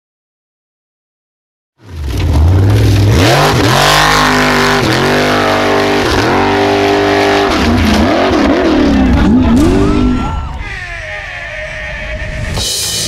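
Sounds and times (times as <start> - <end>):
racing engine revving: 1.8 - 10.6.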